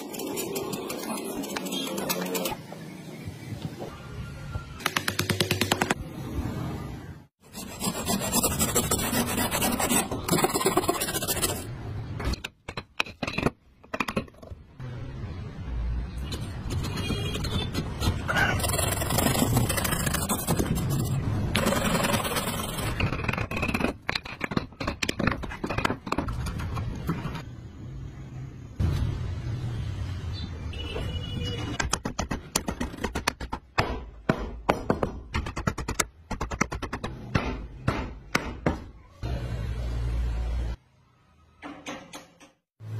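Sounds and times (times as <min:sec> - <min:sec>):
wooden pieces scraping and rubbing: 0:00.0 - 0:02.7, 0:07.4 - 0:14.6, 0:16.2 - 0:27.5, 0:31.7 - 0:33.7
hand saw rasping through wood: 0:07.5 - 0:11.6.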